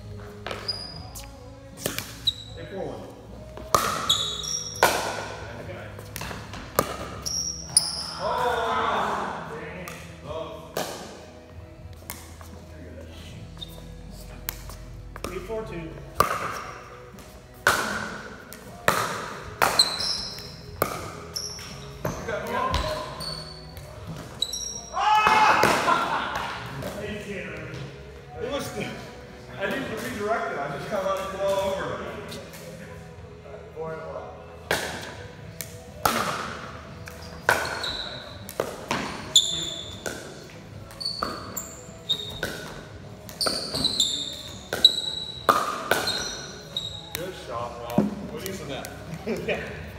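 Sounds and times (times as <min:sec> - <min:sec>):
sneakers squeaking: 0:00.0 - 0:08.6, 0:13.2 - 0:25.4, 0:35.5 - 0:49.9
ball bouncing on concrete: 0:00.4 - 0:02.4, 0:03.5 - 0:05.3, 0:06.0 - 0:08.0, 0:14.4 - 0:23.1, 0:34.7 - 0:49.0
pickleball hit with paddles: 0:03.6 - 0:05.3, 0:06.1 - 0:07.2, 0:10.7 - 0:11.1, 0:16.2 - 0:16.7, 0:17.6 - 0:21.2, 0:34.7 - 0:40.4, 0:42.2 - 0:44.0, 0:44.7 - 0:46.5.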